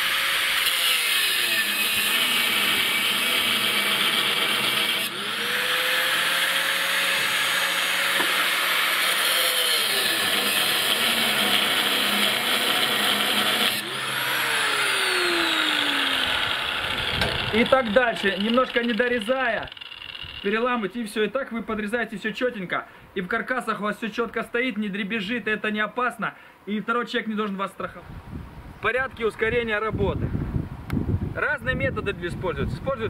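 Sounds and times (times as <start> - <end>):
angle grinder cutting steel: 0.0 - 20.8.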